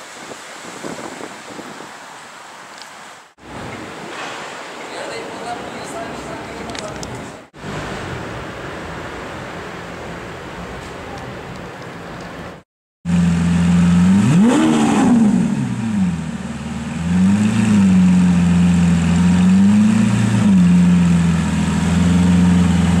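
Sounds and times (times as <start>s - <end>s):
sports car engine idling and revving: 13.1s - 23.0s.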